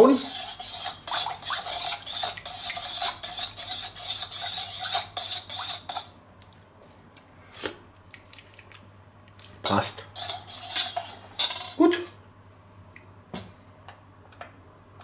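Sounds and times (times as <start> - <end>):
spoon scraping metal bowl: 0.0 - 6.2, 10.1 - 11.8.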